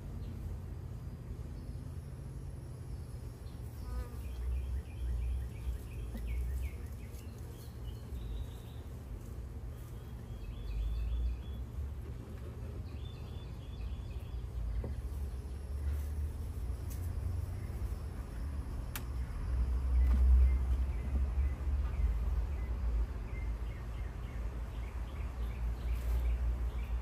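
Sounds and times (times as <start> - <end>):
honeybees buzzing: 2.2 - 20.9.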